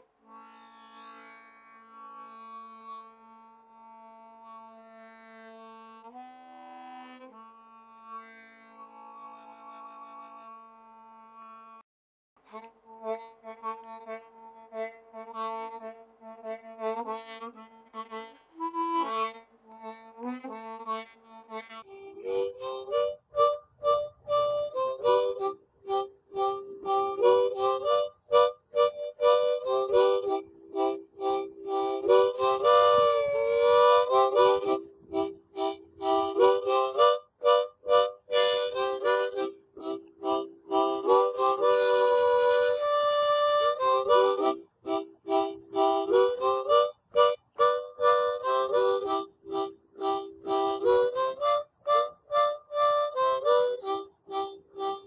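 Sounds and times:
lively music with clipped notes: 0:21.9 - 0:55.0.

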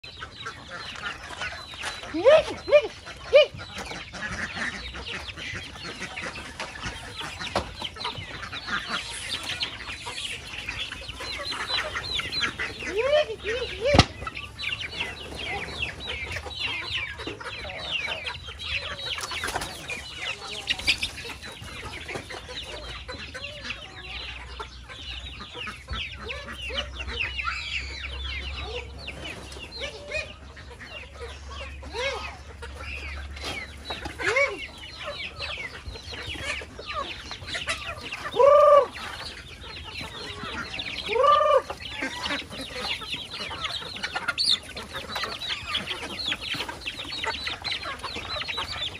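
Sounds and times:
chickens clucking and calling: 0:00.0 - 0:48.9.

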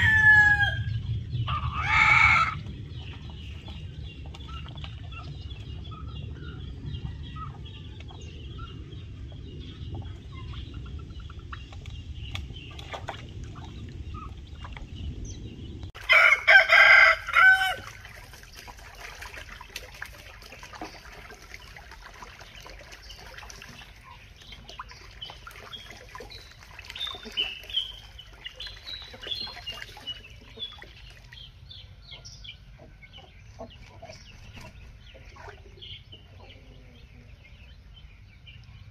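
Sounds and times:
rooster crowing: 0:00.0 - 0:00.9, 0:16.1 - 0:17.9
low rumble: 0:00.0 - 0:16.0
chickens clucking: 0:23.8 - 0:37.8.

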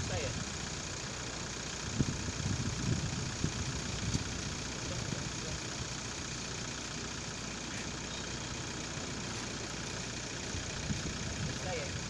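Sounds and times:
wind noise on microphone: 0:01.9 - 0:04.4, 0:10.8 - 0:12.0.

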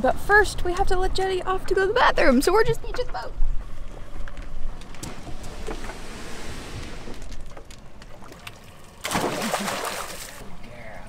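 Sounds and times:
small waves lapping hull: 0:04.9 - 0:10.6.

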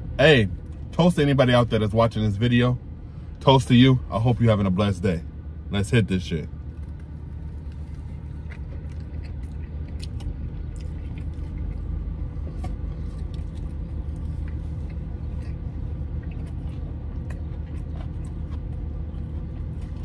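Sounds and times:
car engine idling: 0:00.0 - 0:20.0
chewing a wet sandwich: 0:06.7 - 0:20.0.

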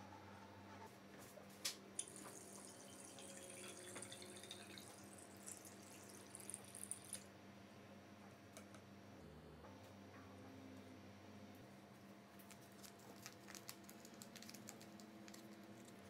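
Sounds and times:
liquid trickling into bottle: 0:02.0 - 0:07.2.

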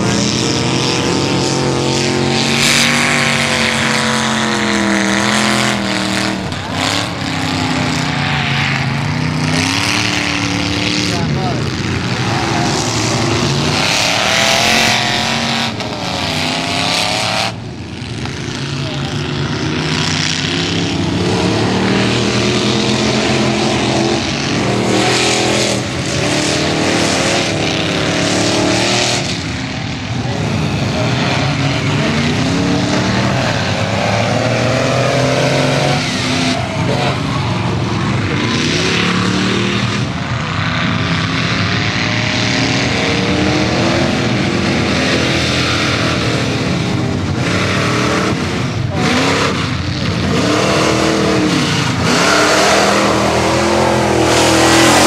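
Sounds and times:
truck engines revving hard: 0:00.0 - 0:55.0.

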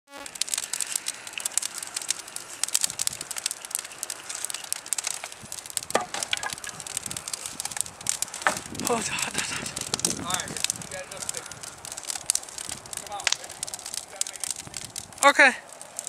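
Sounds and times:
fire crackling and popping: 0:00.1 - 0:16.0
hiss of flame: 0:00.2 - 0:16.0.

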